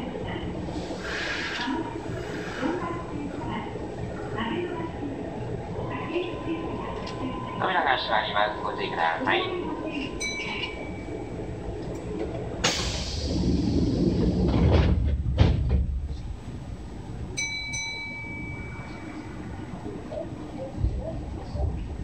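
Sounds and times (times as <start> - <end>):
air hiss: 0.7 - 2.8, 12.6 - 14.3
sliding doors rumble: 11.4 - 17.3.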